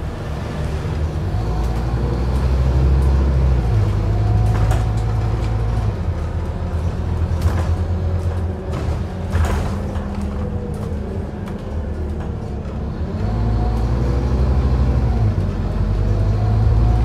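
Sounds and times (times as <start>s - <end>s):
bus diesel engine running: 0.0s - 17.0s
interior rattles: 3.0s - 13.9s.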